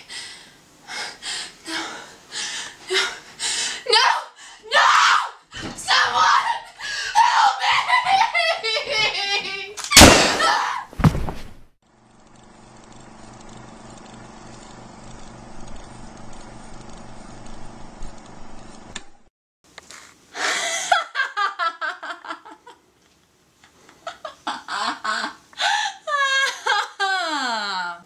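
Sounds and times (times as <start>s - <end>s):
woman cackling laugh: 7.6s - 9.7s, 20.4s - 22.8s, 24.0s - 28.0s
loud thump: 10.0s - 11.7s
low hum: 12.0s - 19.3s.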